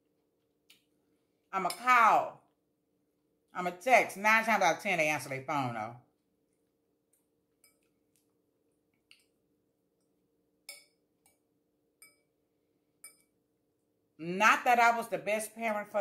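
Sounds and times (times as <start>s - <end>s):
fork clinking on glass bowl: 10.7s - 11.0s, 12.0s - 12.3s, 13.0s - 13.3s.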